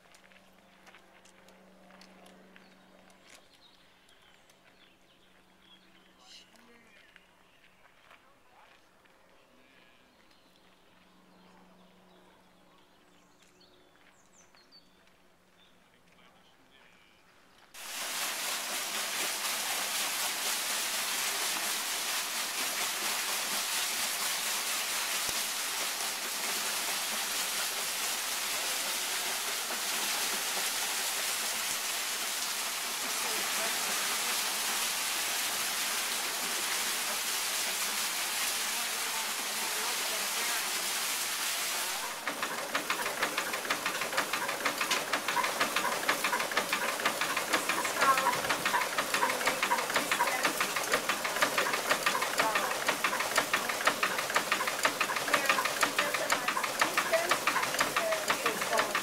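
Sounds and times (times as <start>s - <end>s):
mill machinery rhythmic clatter: 17.8s - 40.9s, 41.8s - 59.0s
water splashing on waterwheel: 17.8s - 59.0s.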